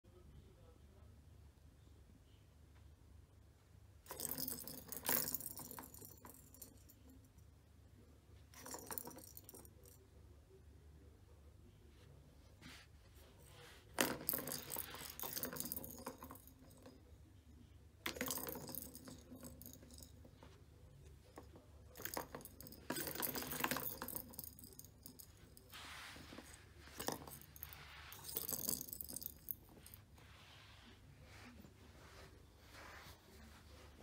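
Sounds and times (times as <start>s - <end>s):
plastic ball rolling and rattling: 4.0s - 7.0s, 8.5s - 10.0s, 13.9s - 17.0s, 18.0s - 20.5s, 21.1s - 30.1s.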